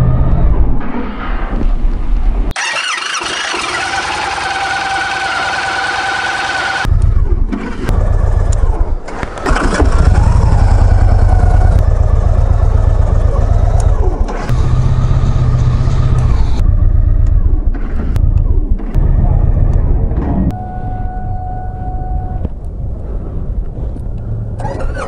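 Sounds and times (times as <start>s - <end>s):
starter motor whining: 2.5s - 6.9s
motorcycle engine running: 2.6s - 20.0s.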